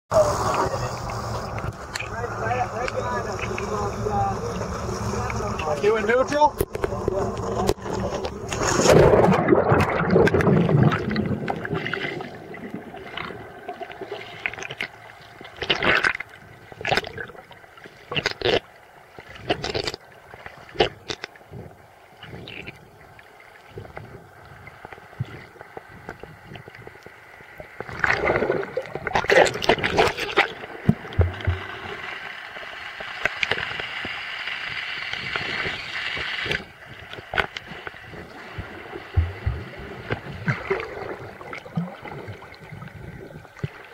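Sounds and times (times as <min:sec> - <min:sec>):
underwater gurgling and bubbles: 0:00.1 - 0:43.9
bubbly bursts: 0:08.4 - 0:18.6, 0:27.8 - 0:32.2, 0:37.3 - 0:43.9.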